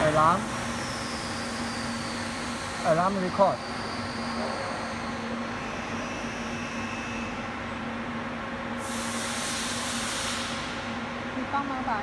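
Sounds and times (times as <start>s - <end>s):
hissing air burst: 8.8s - 10.9s.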